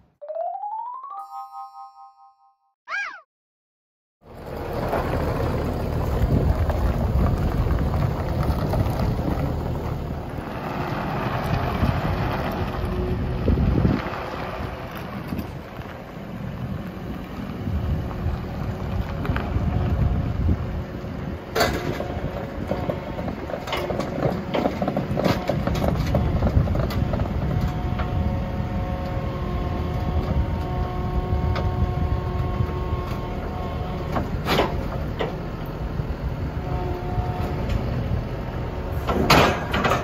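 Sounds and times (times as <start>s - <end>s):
diesel engine running: 4.2s - 40.0s
metal tracks clanking on ramp: 21.5s - 26.6s, 34.2s - 35.5s, 38.9s - 40.0s.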